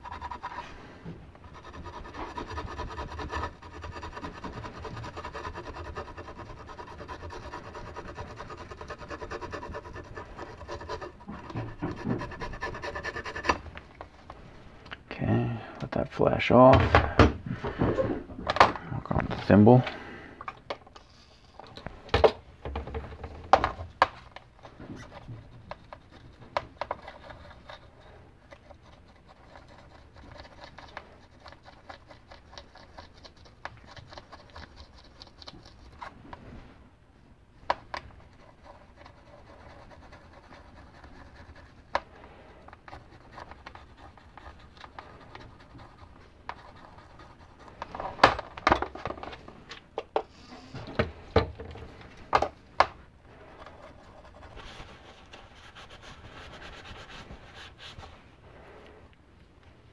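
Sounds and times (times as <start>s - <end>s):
brush scrubbing metal: 0.0s - 0.8s, 1.4s - 13.6s.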